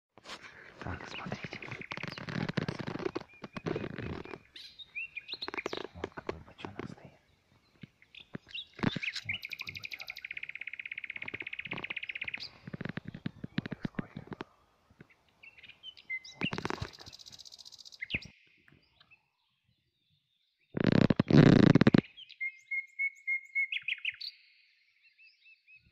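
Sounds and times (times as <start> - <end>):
songbird trilling: 0.8 - 6.4, 7.0 - 14.5, 15.1 - 18.3, 20.9 - 24.4.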